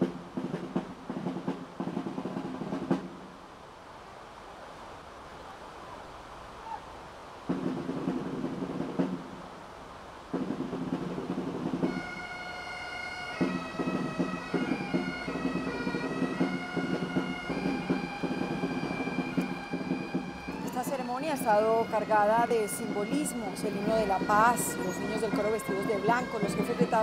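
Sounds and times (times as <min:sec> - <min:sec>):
drum strokes: 0:00.0 - 0:03.3, 0:07.5 - 0:09.4, 0:10.3 - 0:12.6, 0:13.2 - 0:20.9
bagpipe chanter melody: 0:11.8 - 0:27.0
bagpipe drones: 0:11.9 - 0:27.0.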